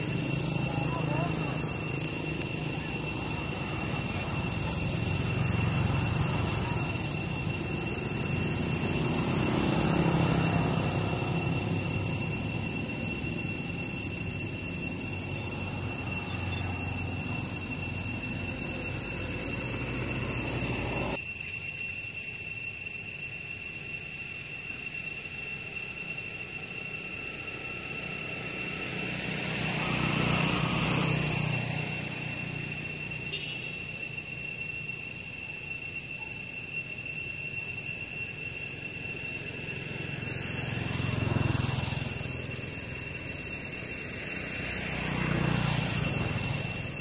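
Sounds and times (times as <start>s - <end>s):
motorbikes and truck passing: 0.0s - 21.2s, 28.0s - 33.9s, 39.4s - 47.0s
steady high whine: 0.0s - 47.0s.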